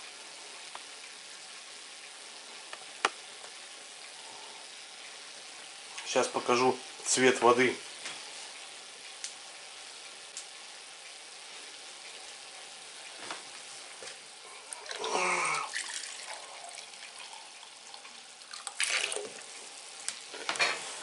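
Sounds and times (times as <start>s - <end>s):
glass gurgling as it fills: 14.6s - 19.6s
water splashing: 14.7s - 19.5s
water trickling into bucket: 14.7s - 19.7s.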